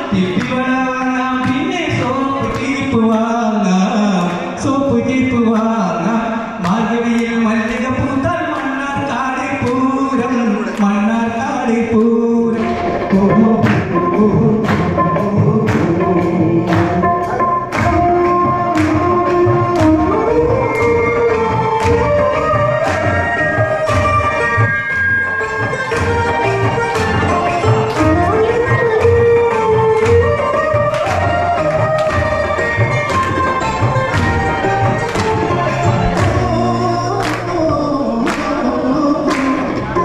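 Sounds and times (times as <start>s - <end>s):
man singing into a microphone: 0.0s - 24.6s, 34.8s - 40.0s
music with sharp strokes: 11.9s - 40.0s
people singing along: 35.2s - 40.0s.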